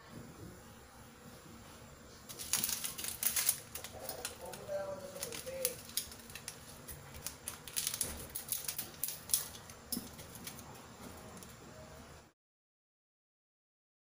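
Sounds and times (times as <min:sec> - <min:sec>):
pot boiling with ticks and pops: 0:01.4 - 0:11.9.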